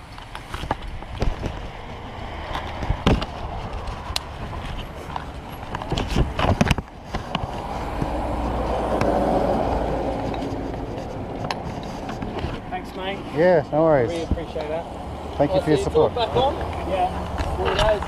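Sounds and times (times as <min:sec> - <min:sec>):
bike gear clicking and knocking: 0:00.0 - 0:12.7
vehicle passing on road: 0:00.0 - 0:18.0.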